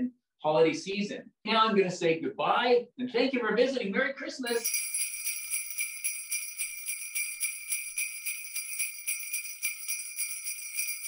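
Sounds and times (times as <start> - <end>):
sleigh bells jingling: 4.5 - 11.0.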